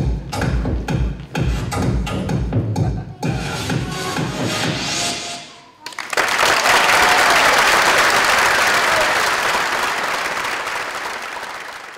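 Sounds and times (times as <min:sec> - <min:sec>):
dance music: 0:00.0 - 0:05.5
audience applauding: 0:05.8 - 0:11.9.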